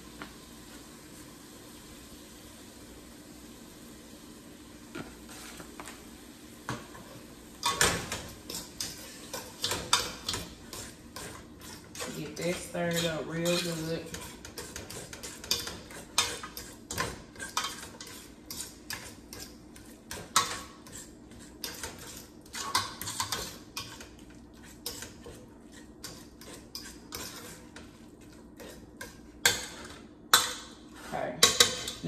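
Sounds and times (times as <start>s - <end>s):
utensil scraping metal pot: 7.6s - 32.0s.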